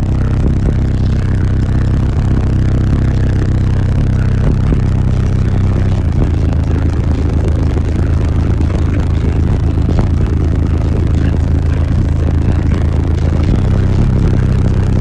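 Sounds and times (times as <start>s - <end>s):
loud bass-heavy music: 0.0s - 15.0s.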